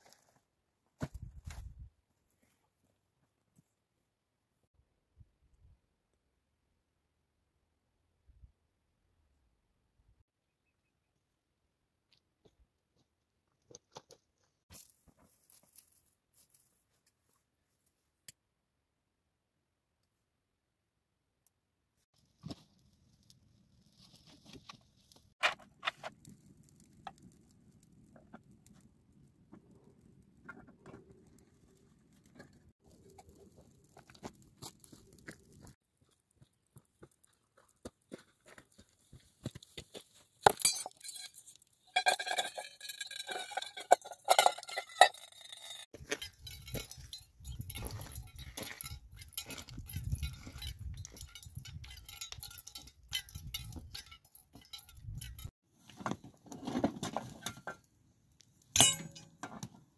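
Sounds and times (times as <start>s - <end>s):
metal cup and pot clinking: 40.5s - 55.5s, 58.8s - 59.5s.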